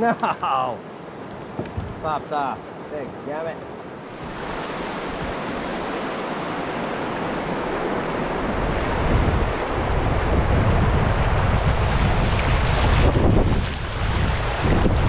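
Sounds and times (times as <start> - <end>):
whitewater rushing: 4.0 - 15.0
wind noise on microphone: 4.1 - 15.0.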